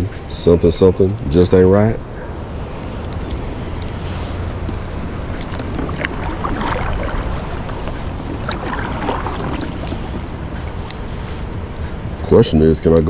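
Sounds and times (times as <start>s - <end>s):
water rushing: 4.3s - 12.3s
paddle splashing in water: 4.9s - 11.6s.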